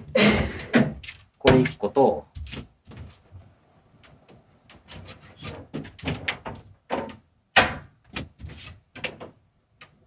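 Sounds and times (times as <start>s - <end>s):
wood scraping and knocking: 4.1s - 9.4s.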